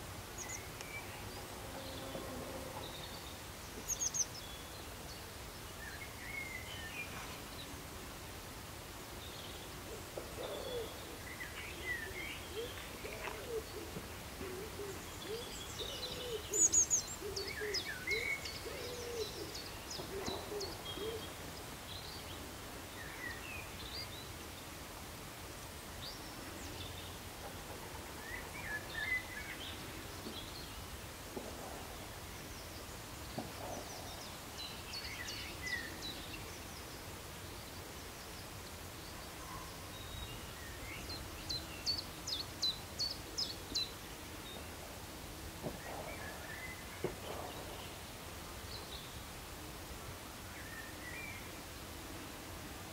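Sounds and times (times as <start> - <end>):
bird low calls: 9.9 - 21.5.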